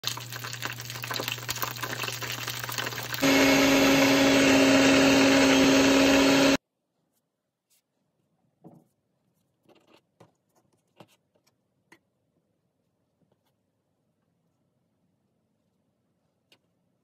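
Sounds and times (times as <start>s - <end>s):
dumplings sizzling in oil: 0.0s - 3.3s
blender motor running: 2.8s - 6.6s.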